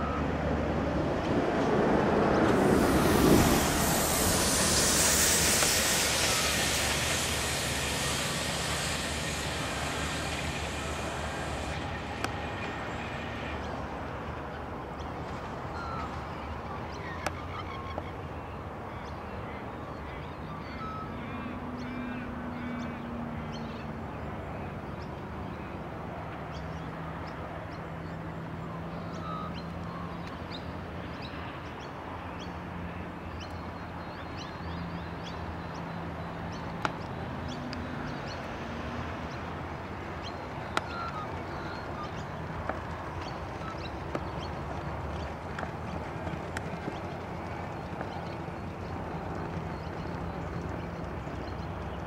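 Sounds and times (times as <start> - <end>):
low hum: 0.0 - 14.6
steady background rush: 37.7 - 52.0
birds calling: 40.2 - 52.0.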